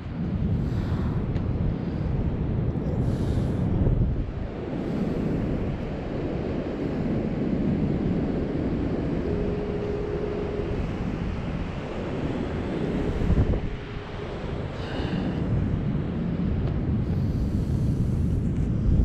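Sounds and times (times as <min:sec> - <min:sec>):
wind buffeting microphone: 0:00.0 - 0:19.0
faint steady tone: 0:04.4 - 0:18.3.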